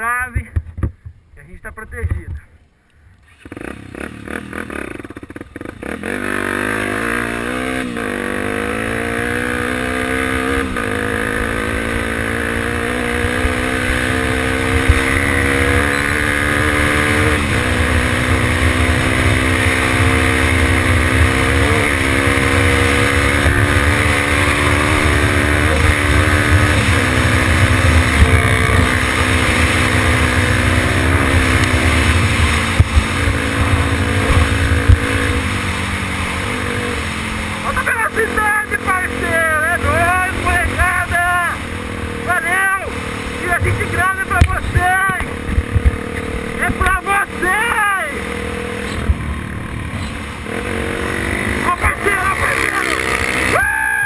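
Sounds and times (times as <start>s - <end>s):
dirt bike engine accelerating: 3.2s - 54.0s
wind rumble on microphone: 23.1s - 36.2s, 43.6s - 46.8s.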